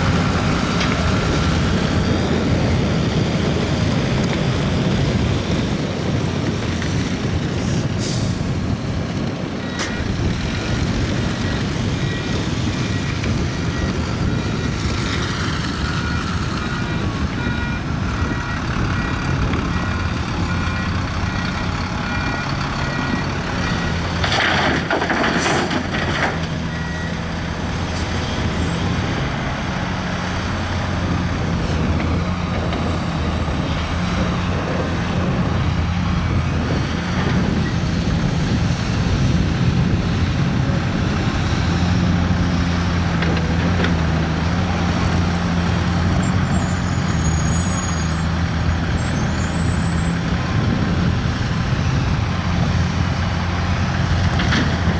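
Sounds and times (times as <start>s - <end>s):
heavy diesel engines running: 0.0s - 54.9s
reversing alarm beeping: 11.3s - 24.2s.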